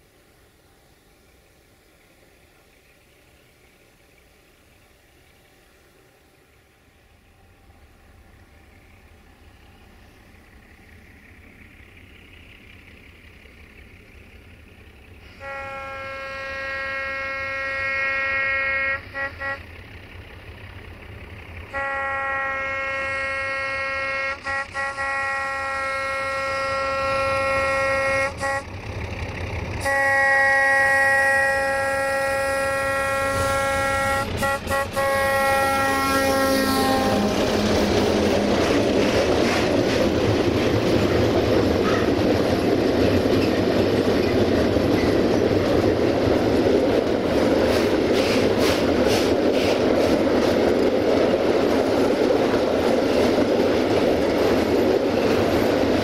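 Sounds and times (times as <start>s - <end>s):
locomotive horn blasts: 15.2s - 19.9s, 21.7s - 28.8s, 29.8s - 38.5s, 41.8s - 42.2s
wheel-on-rail clatter: 37.2s - 56.0s.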